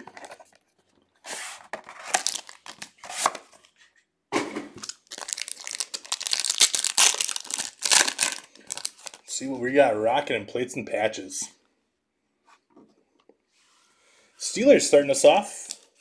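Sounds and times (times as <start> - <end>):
paper packaging tearing: 1.3 - 3.3, 4.8 - 9.2
foil pack crinkling and tearing: 2.1 - 3.0, 4.8 - 9.2.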